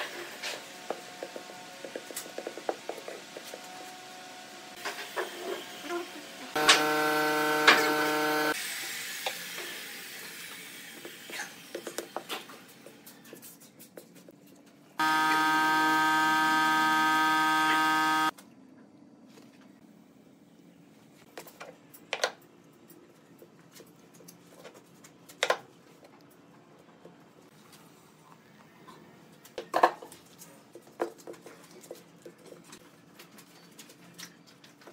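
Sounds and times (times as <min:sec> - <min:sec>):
machine electric buzz: 0:06.6 - 0:08.6, 0:15.0 - 0:18.3.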